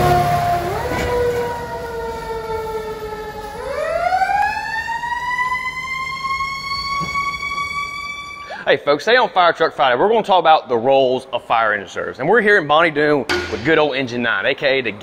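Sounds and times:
fire engine siren wailing: 0:00.0 - 0:08.6.

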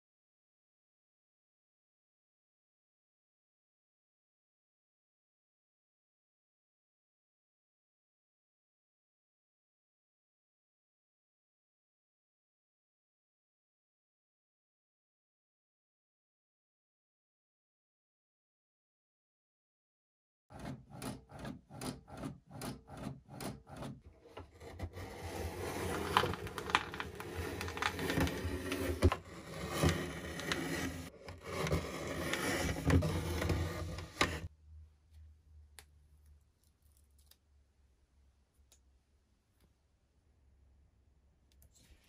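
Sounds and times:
paper trimmer scraping: 0:20.5 - 0:34.5.

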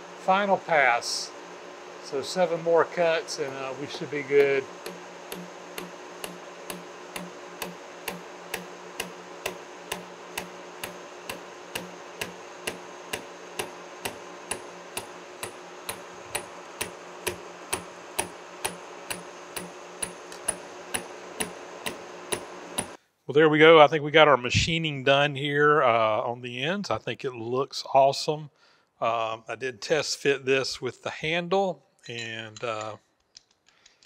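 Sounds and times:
milling machine drone: 0:00.0 - 0:23.0
cutter inserts ticking on metal: 0:04.4 - 0:23.0.

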